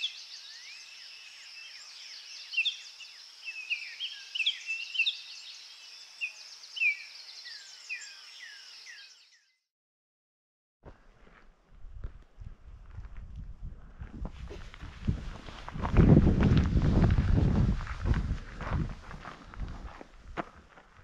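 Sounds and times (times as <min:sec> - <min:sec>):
high background bird chorus: 0:00.0 - 0:09.6.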